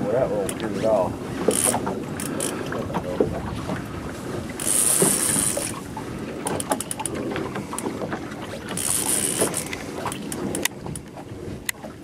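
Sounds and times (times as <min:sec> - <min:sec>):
boat running noise: 0:00.0 - 0:12.0
wind on microphone: 0:00.0 - 0:12.0
reel clicks: 0:00.3 - 0:03.3, 0:04.4 - 0:11.9
fishing reel drag buzzing: 0:01.4 - 0:02.5, 0:04.6 - 0:05.8, 0:08.7 - 0:09.7.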